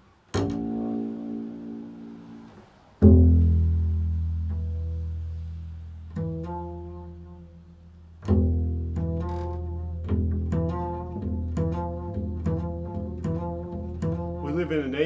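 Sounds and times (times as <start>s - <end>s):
double bass plucked: 0.0s - 15.0s.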